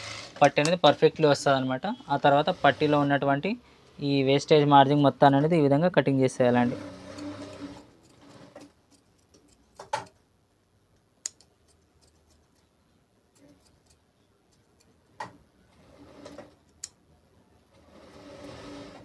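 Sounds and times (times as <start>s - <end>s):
scissors snipping fabric: 7.2s - 10.0s, 11.2s - 12.7s, 13.3s - 15.0s.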